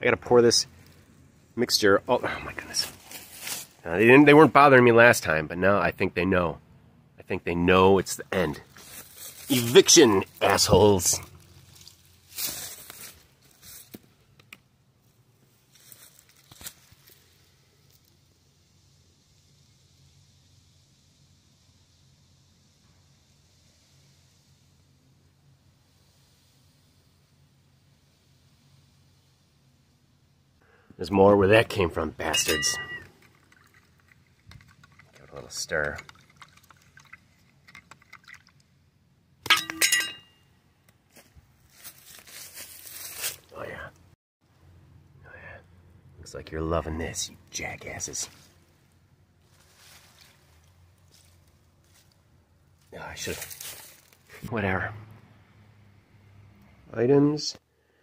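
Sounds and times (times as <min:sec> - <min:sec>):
clattering clink with ring: 0:32.3 - 0:33.6, 0:39.5 - 0:40.5
liquid splashing and rustling: 0:33.0 - 0:38.8.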